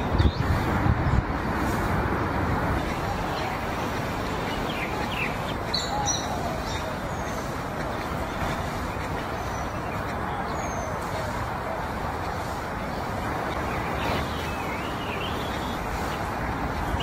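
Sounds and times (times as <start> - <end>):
outdoor hiss and rumble: 0.0 - 17.0
bird chirps: 2.8 - 11.3, 12.9 - 17.0.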